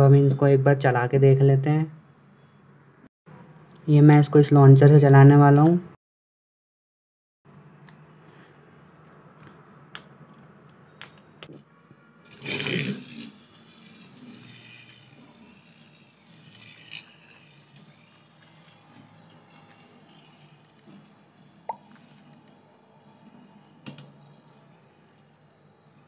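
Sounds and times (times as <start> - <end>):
spinning top rattling on plate: 12.3 - 22.4, 23.1 - 26.0.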